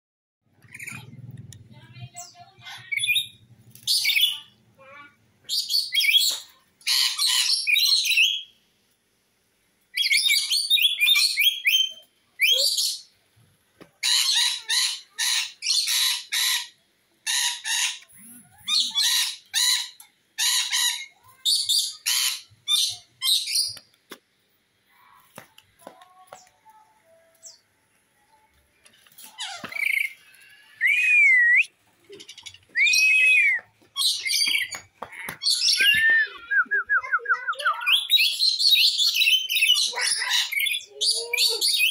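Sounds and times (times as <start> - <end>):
faint bird chatter: 0.5 - 8.6, 9.9 - 13.2, 13.9 - 24.1, 24.8 - 41.9
parrot screeching calls: 6.9 - 8.3, 14.0 - 23.6, 37.8 - 41.9.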